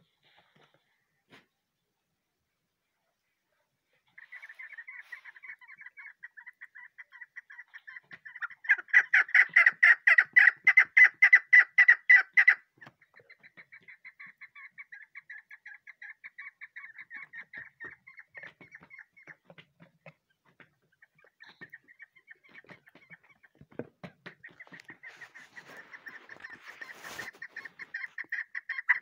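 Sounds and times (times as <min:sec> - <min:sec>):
partridge chattering call: 0:04.2 - 0:19.5, 0:24.4 - 0:29.0.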